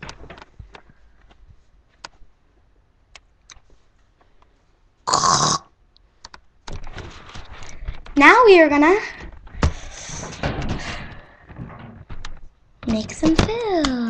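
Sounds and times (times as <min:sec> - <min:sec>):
faint clicks and taps: 0:00.0 - 0:04.6, 0:06.0 - 0:08.2.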